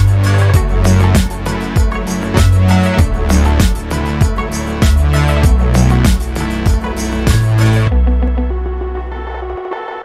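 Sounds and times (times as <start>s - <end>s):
music with drum beat and bass: 0.0s - 8.0s.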